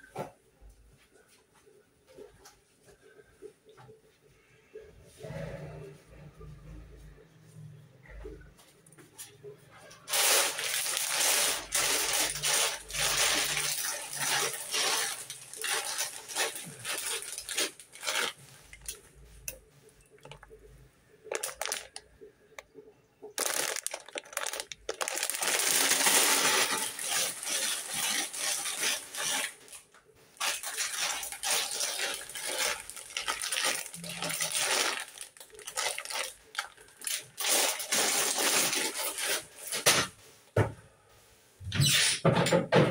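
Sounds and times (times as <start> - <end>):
dry pasta rattling: 10.1 - 19.0, 21.3 - 22.0, 23.4 - 29.8, 30.4 - 39.8
plastic bag crinkling: 10.1 - 19.0, 20.1 - 20.6, 21.2 - 22.1, 23.4 - 40.1.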